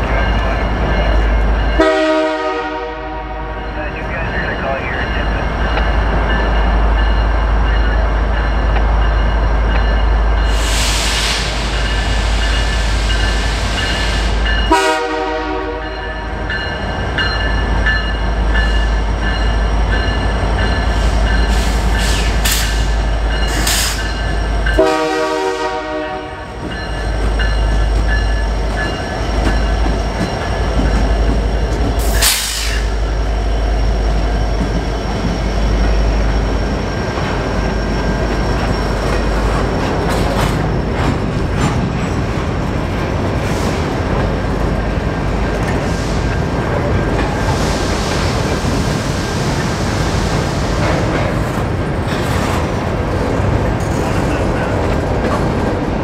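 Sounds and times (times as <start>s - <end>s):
freight train rumbling: 0.0s - 56.0s
locomotive horn blasts: 1.8s - 3.9s, 14.7s - 15.9s, 24.8s - 26.5s.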